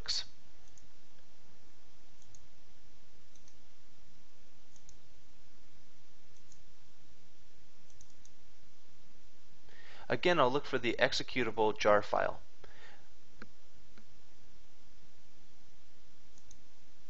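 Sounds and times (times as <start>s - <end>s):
steady background hiss: 0.0s - 17.0s
computer mouse clicks: 0.6s - 1.3s, 2.2s - 2.5s, 3.3s - 3.6s, 4.7s - 5.0s, 6.3s - 6.7s, 7.9s - 8.4s, 16.3s - 16.6s.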